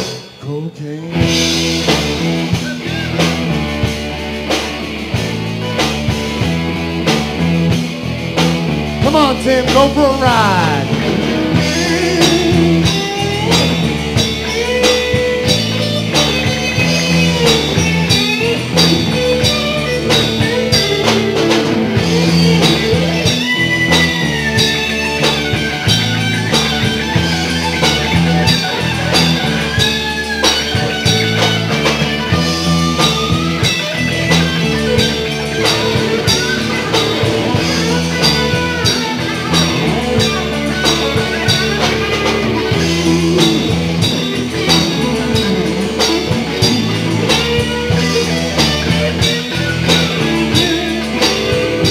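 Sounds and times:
bass guitar: 0.0s - 51.9s
drum kit beat: 0.0s - 51.9s
electric guitar solo: 1.1s - 51.9s.

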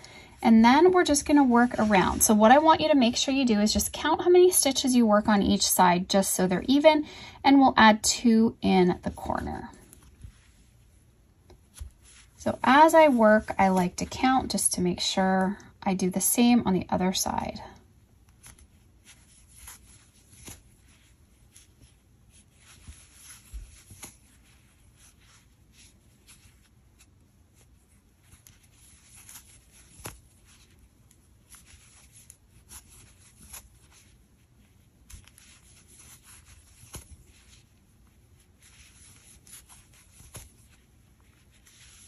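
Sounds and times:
crochet hook rubbing yarn: 18.4s - 42.0s.

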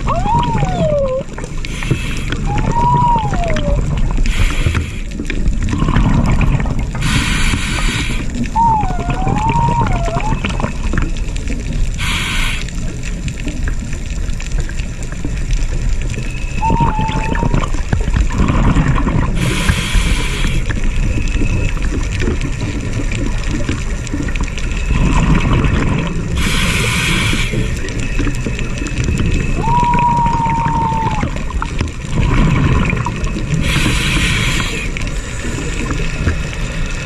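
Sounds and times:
low rumbling bubbles: 0.0s - 37.0s
diver breathing through regulator: 1.6s - 2.7s, 4.2s - 6.4s, 7.0s - 8.4s, 12.0s - 12.7s, 19.4s - 20.8s, 26.4s - 27.8s, 33.6s - 35.6s
rising whistle tone: 2.5s - 3.8s, 16.4s - 17.6s, 29.5s - 31.4s.

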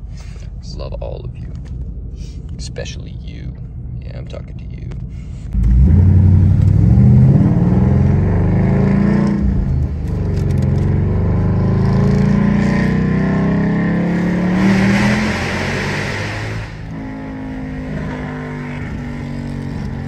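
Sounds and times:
car engine revving loudly: 5.6s - 20.0s.

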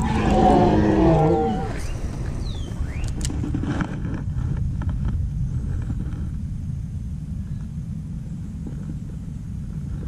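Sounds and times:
wind buffeting microphone: 0.0s - 10.0s
short whistled chirps: 1.8s - 3.2s.

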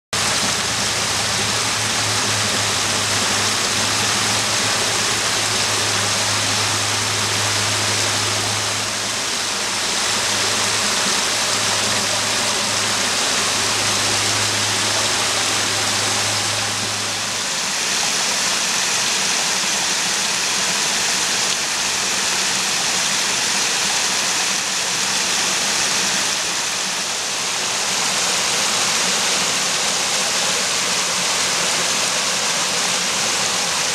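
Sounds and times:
low steady hum: 0.2s - 21.0s
stream running over rocks: 0.2s - 33.9s.

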